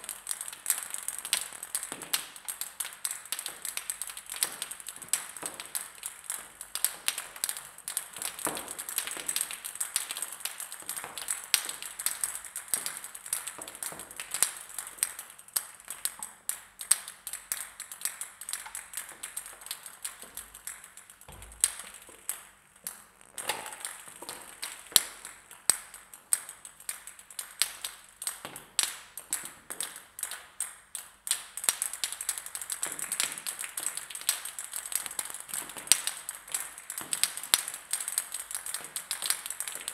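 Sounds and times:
table tennis balls bouncing: 21.2s - 22.3s.

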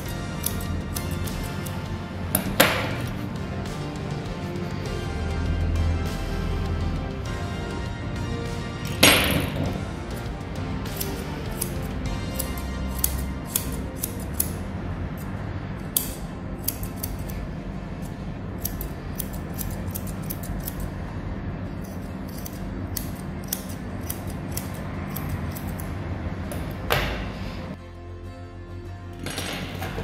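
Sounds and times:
grooming shears snipping hair: 0.0s - 3.8s, 9.7s - 21.0s, 21.8s - 26.7s.

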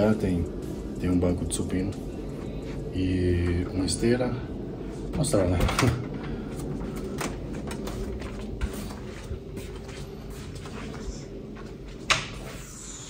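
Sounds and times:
steady low hum: 0.0s - 13.0s
light footsteps: 6.4s - 12.6s.

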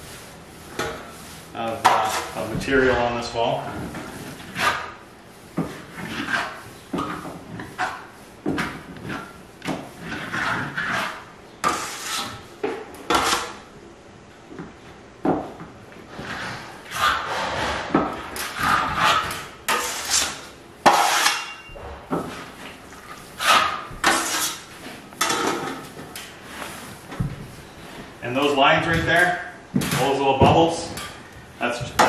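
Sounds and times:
trowel scraping across wall: 0.0s - 13.7s, 16.0s - 27.2s.

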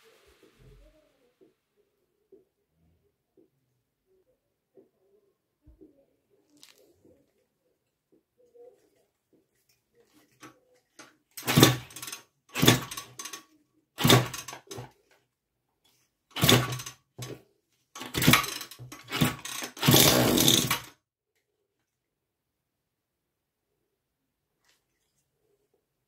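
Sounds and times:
small engine pull starting: 11.4s - 13.4s, 14.0s - 14.9s, 16.3s - 17.4s, 18.0s - 20.9s.

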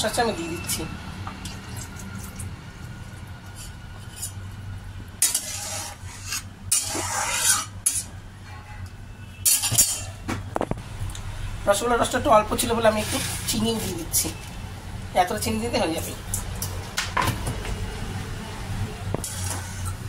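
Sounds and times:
spatula scraping pan: 5.2s - 8.1s, 12.9s - 14.0s, 19.2s - 20.0s.

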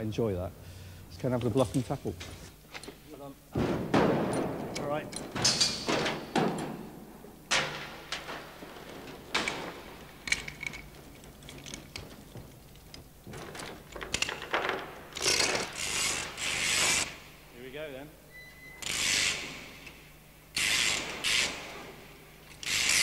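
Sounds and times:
chain hoist clanks and ratchet clicks: 9.2s - 17.1s, 22.5s - 23.0s
chain rattling: 9.3s - 14.4s.

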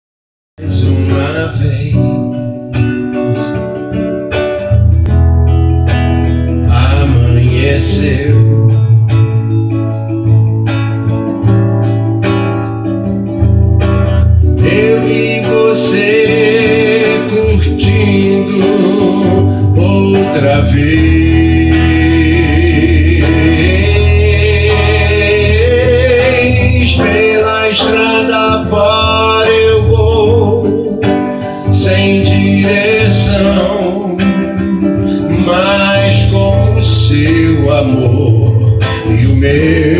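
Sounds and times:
man singing: 0.6s - 4.0s, 6.5s - 9.6s, 14.5s - 39.9s
acoustic guitar playing: 0.6s - 39.9s.

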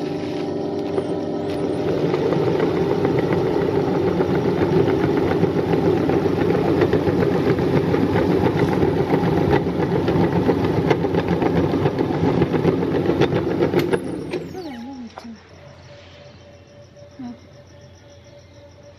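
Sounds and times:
meat grinder grinding cookies: 0.0s - 14.7s.

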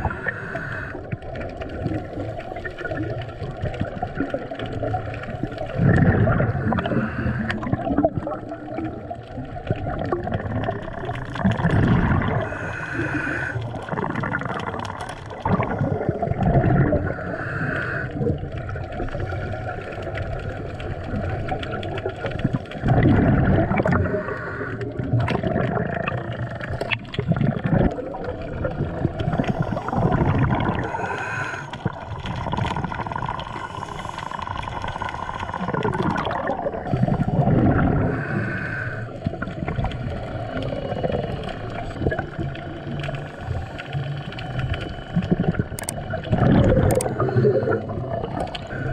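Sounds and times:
underwater exhaled bubbles gushing: 0.0s - 48.9s.

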